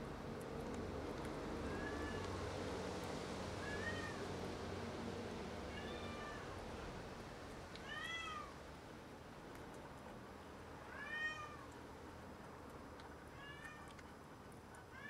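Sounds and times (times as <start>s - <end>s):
cat meowing: 5.7s - 6.6s, 7.8s - 8.5s, 10.9s - 11.6s.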